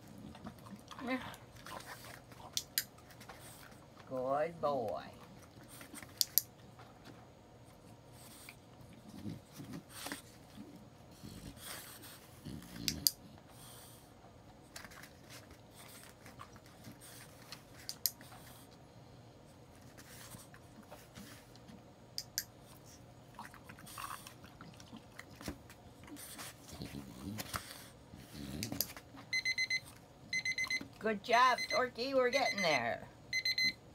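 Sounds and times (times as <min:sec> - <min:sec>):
dog chewing and shuffling: 0:00.0 - 0:31.4
dog-training clicker clicks: 0:06.1 - 0:06.5.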